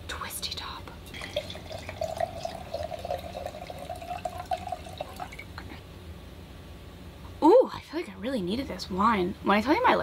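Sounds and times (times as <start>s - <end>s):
wine pouring into glass: 1.1s - 5.5s.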